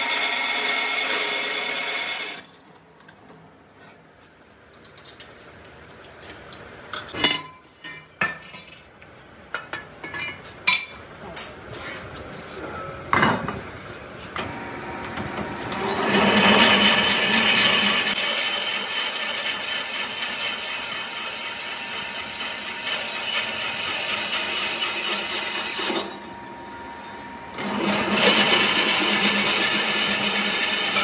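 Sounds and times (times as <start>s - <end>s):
drill press boring metal: 0.0s - 2.6s, 15.8s - 26.2s, 27.6s - 31.0s
metal clink: 10.0s - 11.5s.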